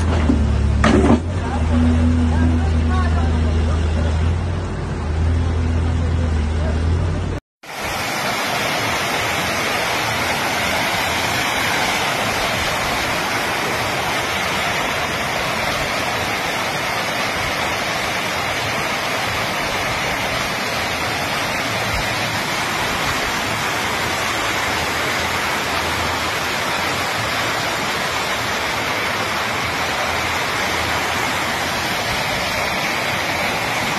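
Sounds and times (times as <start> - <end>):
floodwater rushing: 7.6 - 33.9.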